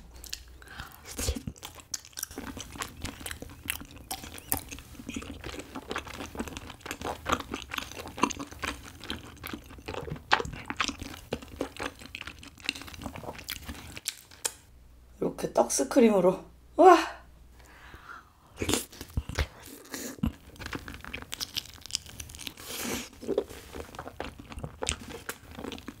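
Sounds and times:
close chewing: 0.1s - 14.6s, 18.6s - 26.0s
wet sticky mouth clicks: 14.0s - 14.6s.

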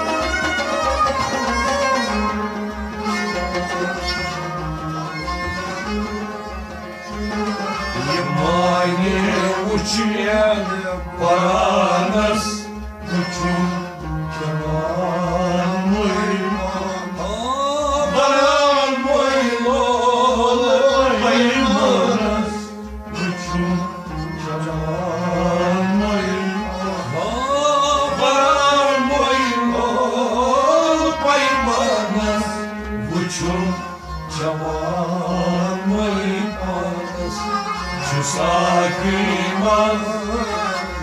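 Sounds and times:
instrumental accompaniment: 0.0s - 41.0s
person singing devotional song: 17.4s - 41.0s.

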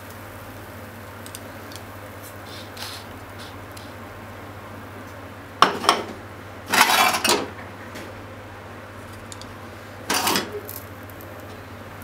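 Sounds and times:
frying pan and chopsticks clattering: 5.6s - 7.5s, 10.1s - 10.8s.

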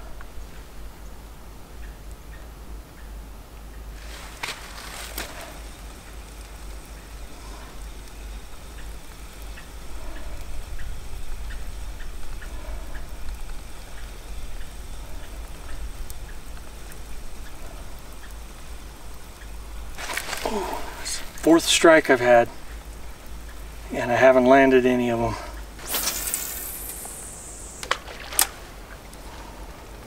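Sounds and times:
steady low rumble: 20.6s - 30.0s
fishing reel ticking: 24.7s - 28.5s
fishing line rushing off reel: 25.8s - 28.8s.

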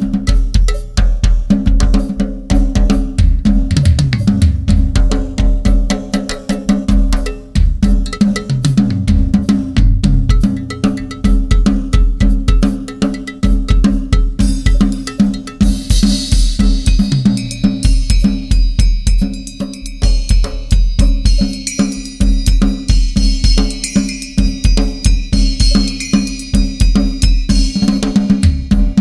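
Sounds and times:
fast tom strokes: 0.0s - 29.0s
cymbals ringing and crashing: 5.2s - 29.0s
bass drum pulses: 7.5s - 12.6s.

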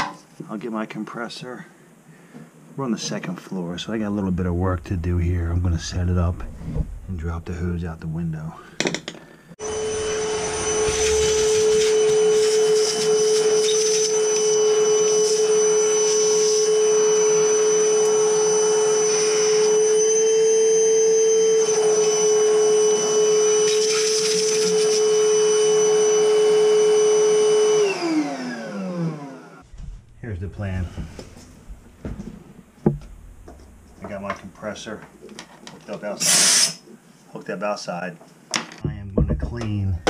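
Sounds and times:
vacuum cleaner motor whine: 9.6s - 29.6s.

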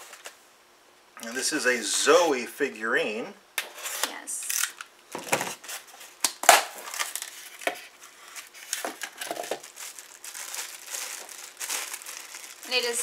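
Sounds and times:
packaging crinkling and crunching: 5.5s - 13.0s.

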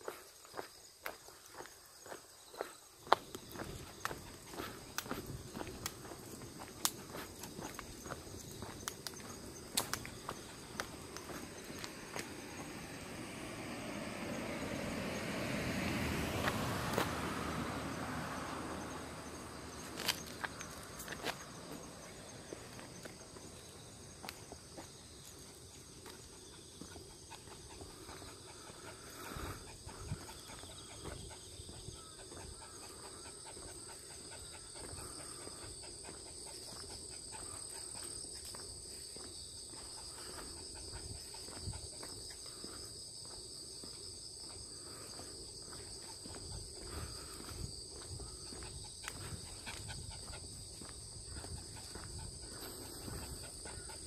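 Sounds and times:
footsteps along a path: 0.0s - 54.0s
insect chorus: 0.0s - 54.0s.

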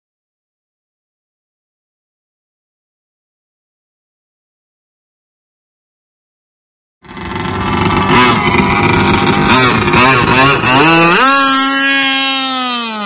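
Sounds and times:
small engine revving: 7.0s - 13.0s.

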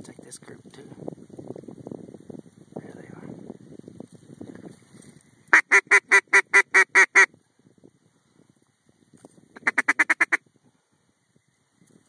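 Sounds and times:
duck call quacks: 5.5s - 7.3s, 9.6s - 10.4s.

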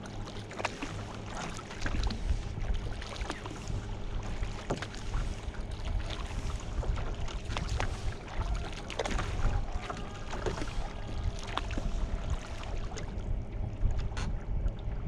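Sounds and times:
water dripping and splashing off paddle: 0.0s - 14.8s
wind rumble on microphone: 0.0s - 15.0s.

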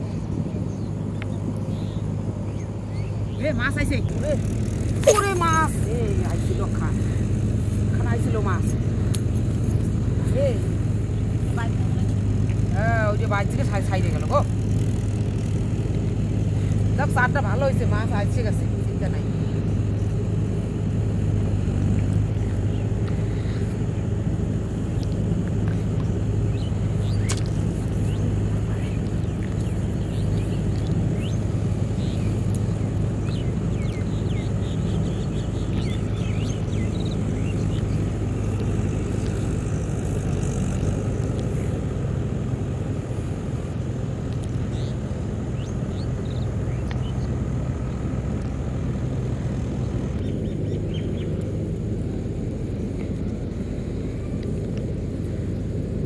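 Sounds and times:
low engine hum: 0.0s - 56.0s.

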